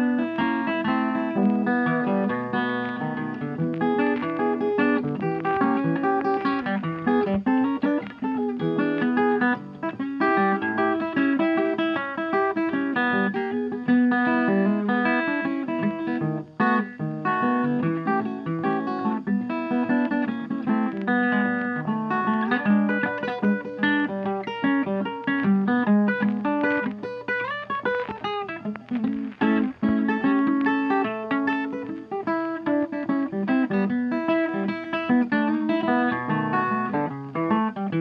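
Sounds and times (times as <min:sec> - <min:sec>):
plucked guitar piece: 0:00.0 - 0:38.0.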